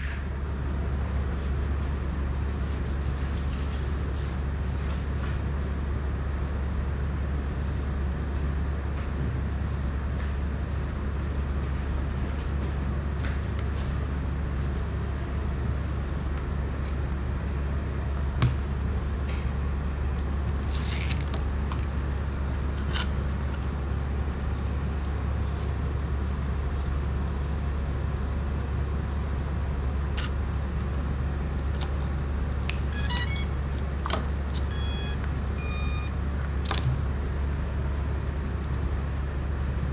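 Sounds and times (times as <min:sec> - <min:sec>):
high-pitched electronic beeps: 0:32.9 - 0:33.6, 0:34.7 - 0:36.2.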